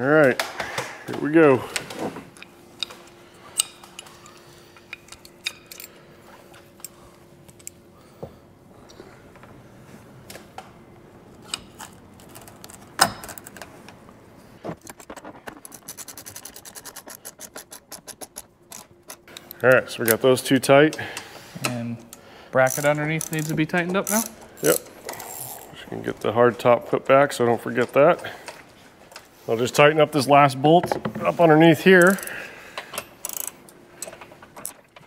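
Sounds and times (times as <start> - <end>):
ratchet clicking: 22.6 - 25.6, 33.2 - 34.1.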